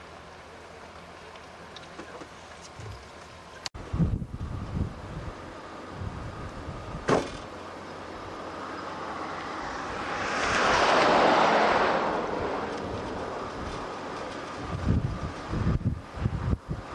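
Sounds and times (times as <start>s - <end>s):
wind rush on microphone: 3.8s - 7.2s, 9.4s - 16.9s
car passing on highway: 7.9s - 15.8s.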